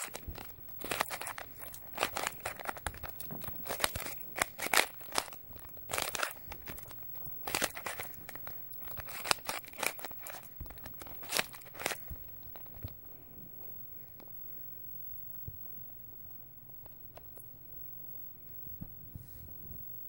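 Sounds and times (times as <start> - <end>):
plastic puzzle cube clicking: 0.0 - 12.1.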